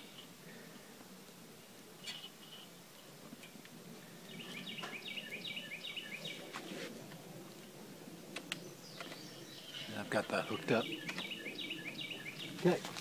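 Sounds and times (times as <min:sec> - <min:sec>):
faint outdoor background noise: 0:00.0 - 0:13.0
songbird chirping: 0:04.0 - 0:06.8, 0:08.3 - 0:13.0.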